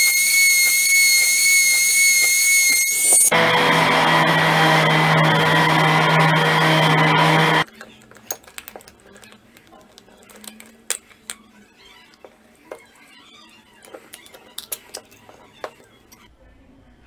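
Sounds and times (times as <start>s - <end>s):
power saw whine cutting plastic: 0.0s - 7.7s.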